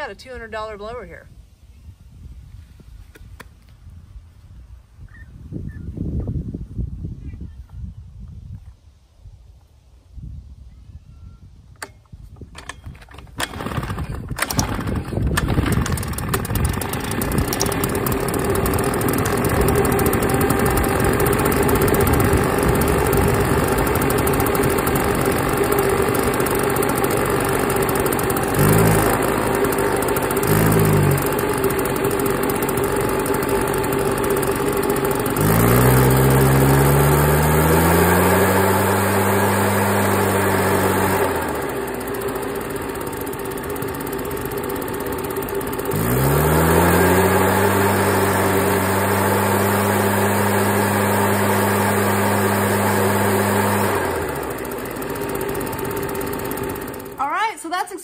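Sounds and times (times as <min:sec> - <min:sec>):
recoil starter pull: 0:11.8 - 0:57.5
leaf blower engine running: 0:12.6 - 0:58.0.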